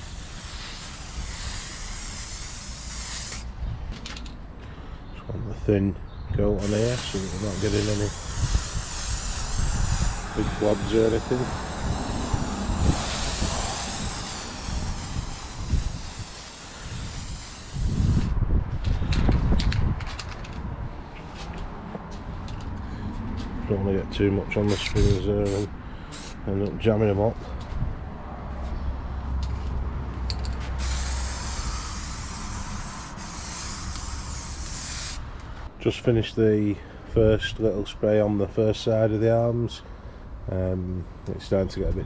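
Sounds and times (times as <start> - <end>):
spray paint can hissing: 0.0 - 3.5, 6.6 - 18.3, 24.7 - 26.4, 30.8 - 35.3
wind rumbling on microphone: 3.5 - 4.0, 6.3 - 23.3, 27.6 - 29.0.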